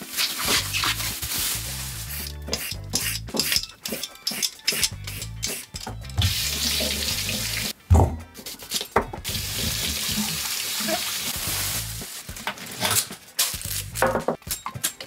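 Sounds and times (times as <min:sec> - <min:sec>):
tap water running into sink: 0:06.2 - 0:07.7, 0:09.3 - 0:11.3.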